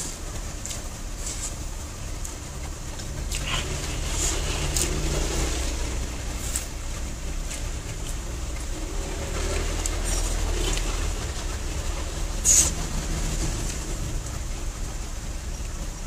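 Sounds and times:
steady low rumble: 0.0 - 16.0
person chewing: 3.0 - 6.7, 9.4 - 11.1.

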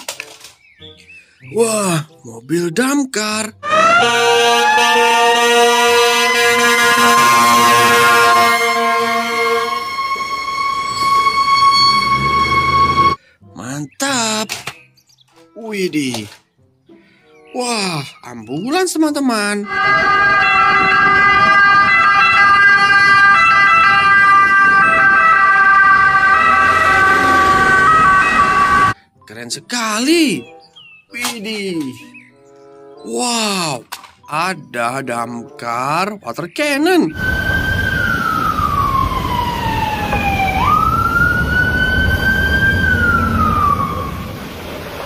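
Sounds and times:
road noise: 3.5 - 13.4, 19.6 - 29.0, 37.1 - 45.0
ambulance siren: 3.6 - 13.2, 19.6 - 29.0, 37.1 - 44.5
truck rumbling past: 5.8 - 13.2, 37.2 - 45.0.

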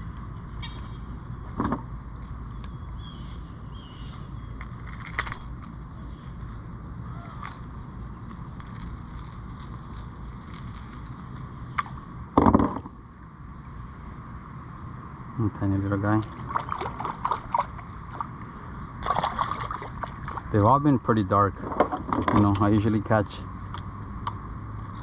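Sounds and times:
fishing tackle clicking and rattling: 0.0 - 1.0, 2.2 - 12.2
low background noise: 0.0 - 25.0.

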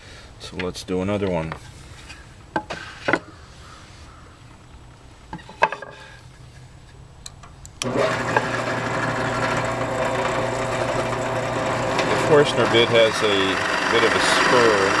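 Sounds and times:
drill press motor humming: 7.8 - 15.0.

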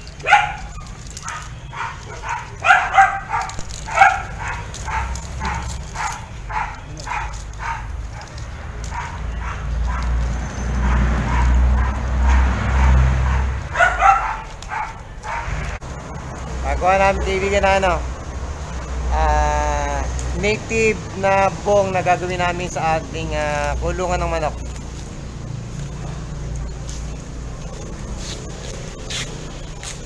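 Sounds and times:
dog barking: 0.1 - 15.8.

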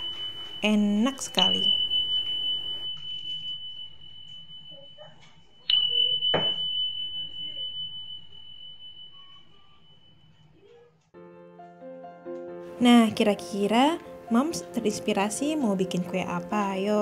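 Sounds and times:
high chime ding: 0.0 - 10.8.

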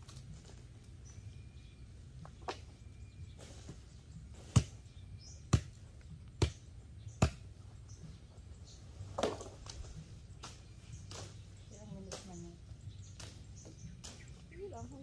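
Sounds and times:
machete chopping branches: 4.3 - 7.6, 9.1 - 14.5.

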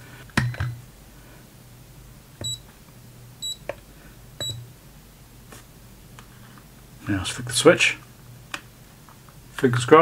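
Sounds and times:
multimeter beeping: 2.4 - 2.7, 3.4 - 3.6, 4.4 - 4.7.

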